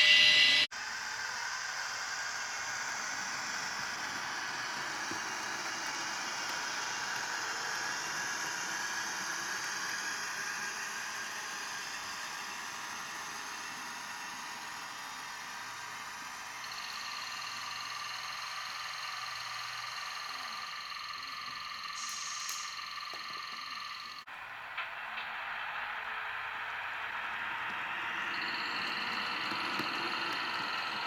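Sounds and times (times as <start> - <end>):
loud steady tone: 0.0 - 0.7
model train whirring on track: 0.0 - 31.0.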